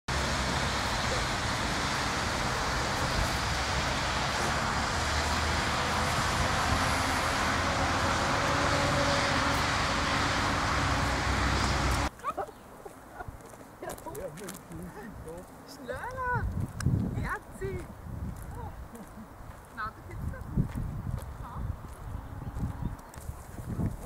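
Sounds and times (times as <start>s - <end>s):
outdoor background noise: 0.1s - 24.0s.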